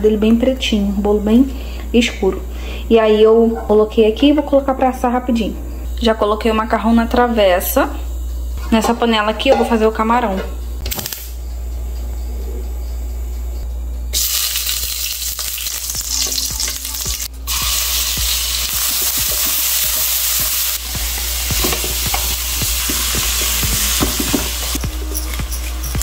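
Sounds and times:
food sizzling in a wok: 14.2s - 26.0s.

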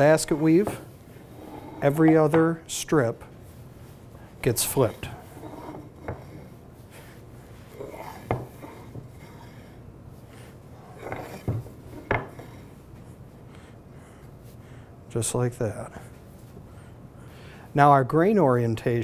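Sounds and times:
wooden blocks sliding and rubbing: 0.0s - 2.4s, 4.6s - 12.7s.

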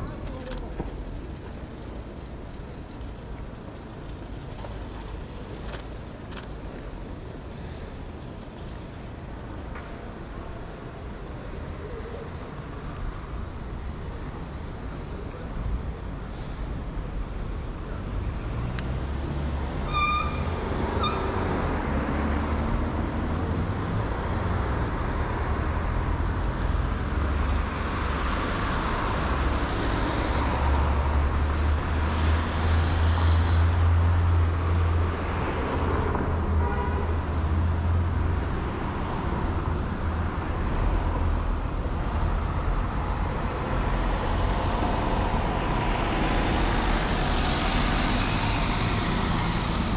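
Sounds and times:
cars and vans passing: 0.0s - 49.9s.

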